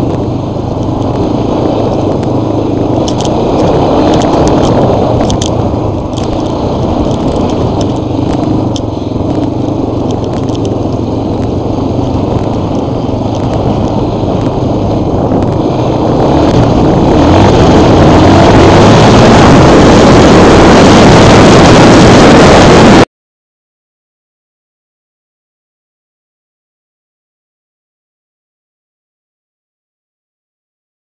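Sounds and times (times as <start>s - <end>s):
wind buffeting microphone: 0.0s - 23.0s
offroad vehicle engine running hard: 0.0s - 23.1s.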